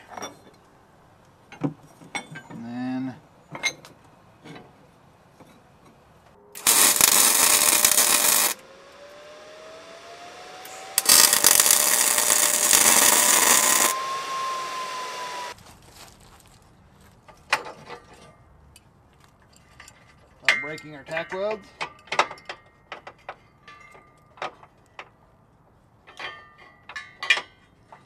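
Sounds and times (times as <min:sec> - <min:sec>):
arc welding crackle: 0:06.6 - 0:09.6, 0:10.5 - 0:15.6.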